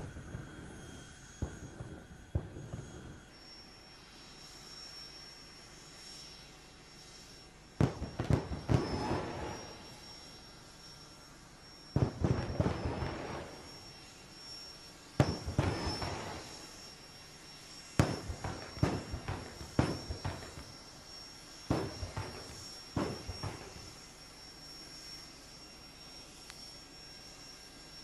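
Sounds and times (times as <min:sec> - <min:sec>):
afterburner bangs and crackling rumble: 0:00.0 - 0:03.3, 0:07.8 - 0:09.8, 0:11.9 - 0:13.8, 0:15.2 - 0:16.7, 0:18.0 - 0:20.8, 0:21.7 - 0:24.0
turbine high whine: 0:00.0 - 0:28.0.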